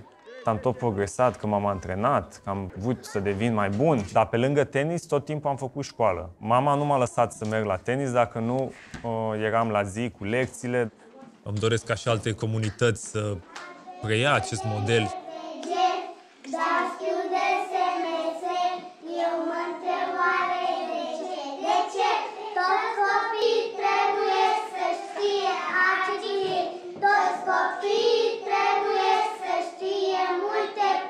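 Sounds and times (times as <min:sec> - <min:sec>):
children singing: 0:13.6 - 0:31.0.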